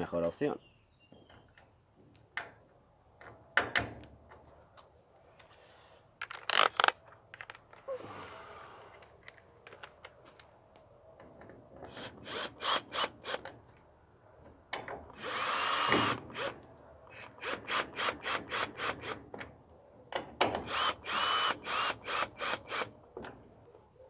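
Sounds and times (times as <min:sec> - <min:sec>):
cordless drill motor whining: 0:20.7 - 0:22.9.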